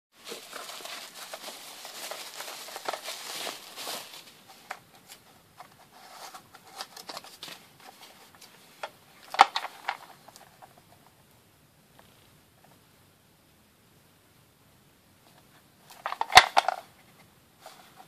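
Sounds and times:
bubble wrap crinkling: 0:00.2 - 0:05.2, 0:15.9 - 0:16.9.

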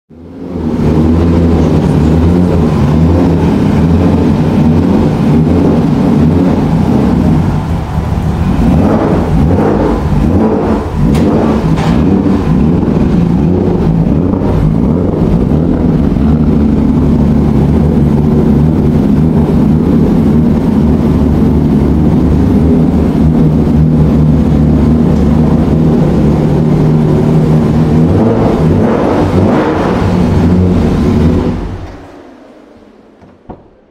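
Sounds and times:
race car engine idling: 0:00.1 - 0:33.9.

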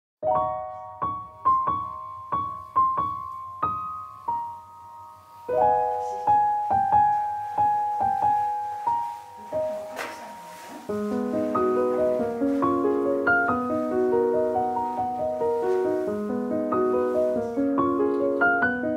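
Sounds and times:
slow piano music: 0:00.2 - 0:18.9.

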